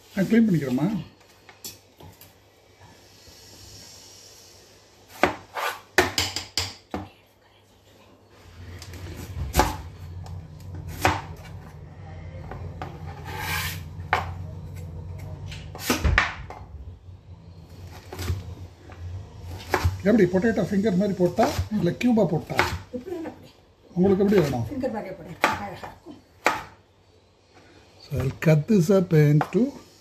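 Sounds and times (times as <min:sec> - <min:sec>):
knife chopping on cutting board: 0:05.1 - 0:06.7, 0:10.9 - 0:11.3, 0:19.5 - 0:20.0, 0:22.5 - 0:22.8
steady low hum: 0:07.5 - 0:25.1.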